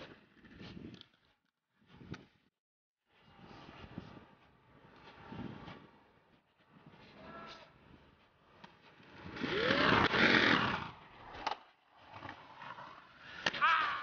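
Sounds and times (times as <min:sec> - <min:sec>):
skates grinding on concrete: 0:03.1 - 0:14.0.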